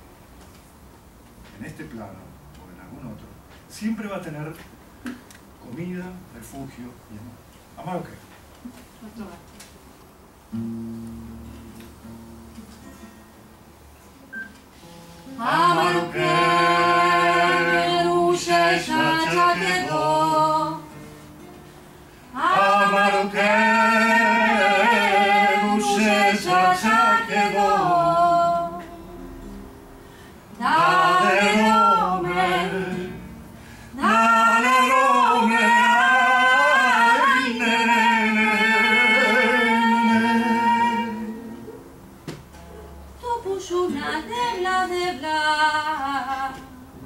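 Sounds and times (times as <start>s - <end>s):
soft acoustic guitar: 0.0s - 47.0s
woman singing: 15.3s - 21.0s, 22.3s - 29.5s, 30.6s - 33.2s, 34.0s - 41.6s, 43.2s - 47.0s.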